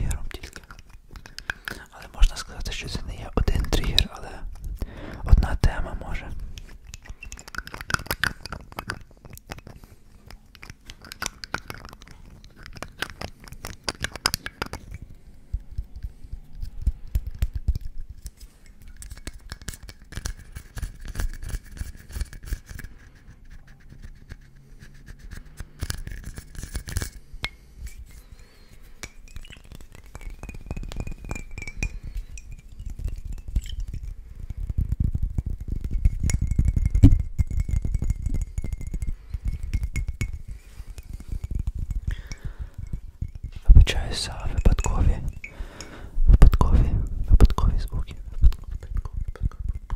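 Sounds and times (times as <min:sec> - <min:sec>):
fingertips tapping on glass bottle: 0:00.0 - 0:49.9
glass clinks: 0:29.1 - 0:33.8, 0:44.6 - 0:45.9
rubbing over microphone: 0:42.9 - 0:45.5, 0:46.2 - 0:49.8.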